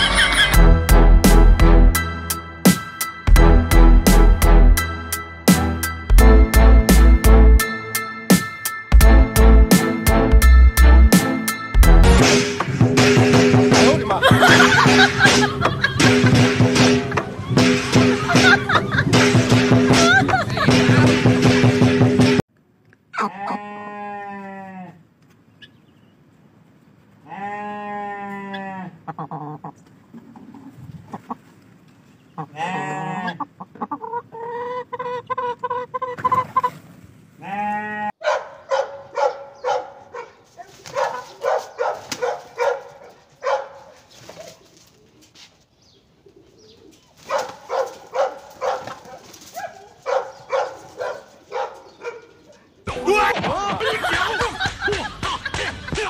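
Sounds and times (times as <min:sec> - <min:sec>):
chickens squawking and clucking: 0:00.0 - 0:00.6, 0:28.5 - 0:31.6, 0:32.4 - 0:38.1, 0:40.6 - 0:45.4, 0:46.2 - 0:54.4.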